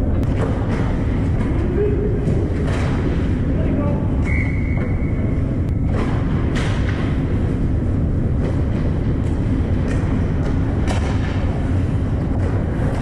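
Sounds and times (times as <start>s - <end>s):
low rumble of ice rink: 0.0s - 13.0s
high whistle tone: 4.2s - 5.3s.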